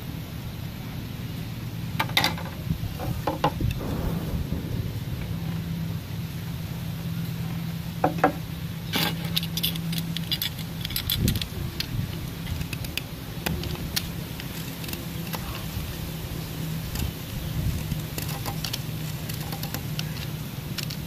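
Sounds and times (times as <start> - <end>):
steady low hum: 0.0 - 21.0
knife scraping bamboo: 17.8 - 21.0.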